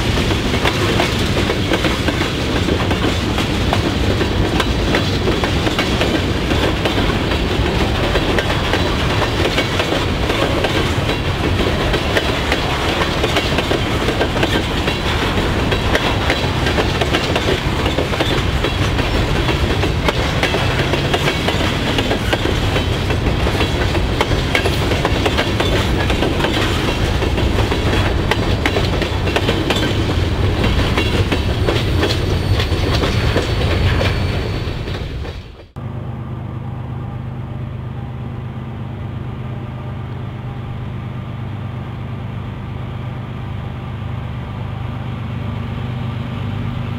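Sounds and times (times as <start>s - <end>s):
wheels clacking over rail joints: 0.0s - 35.8s
freight train rumbling past: 0.0s - 46.9s.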